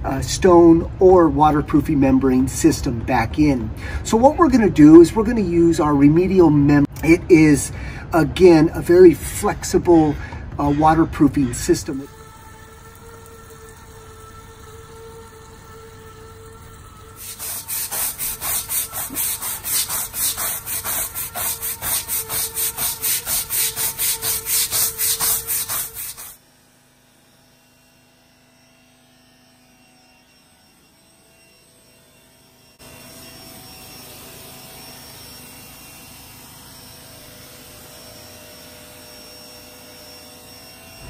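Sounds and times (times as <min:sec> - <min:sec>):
spray wand hissing: 0:11.9 - 0:26.4
push-broom scrubbing wet stone: 0:12.6 - 0:26.4.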